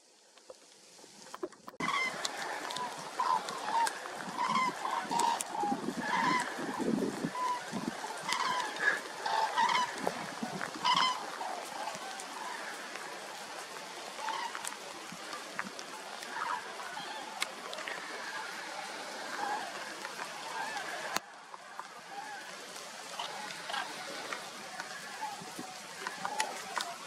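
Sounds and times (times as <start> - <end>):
rain hiss: 0.0 - 27.0
cranes calling in flight: 1.8 - 13.1.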